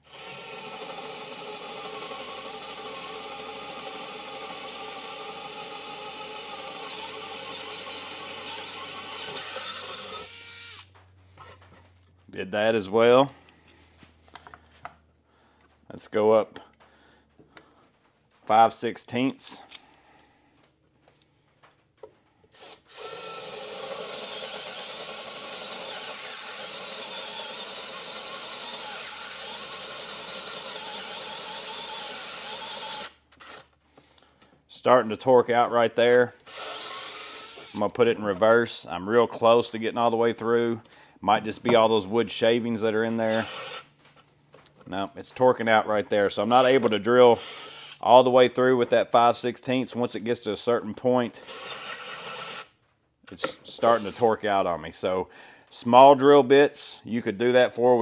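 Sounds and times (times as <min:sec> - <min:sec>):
electric screwdriver drilling wood: 0:00.0 - 0:11.0, 0:22.6 - 0:33.7, 0:36.5 - 0:37.8, 0:43.2 - 0:43.9, 0:46.5 - 0:48.0, 0:51.4 - 0:52.7, 0:53.7 - 0:54.3.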